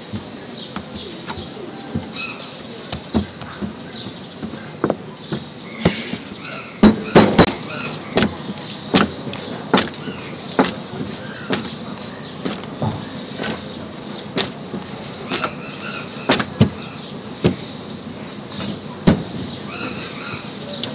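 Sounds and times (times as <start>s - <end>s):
dough slapping on steel surface: 7.2s - 12.7s.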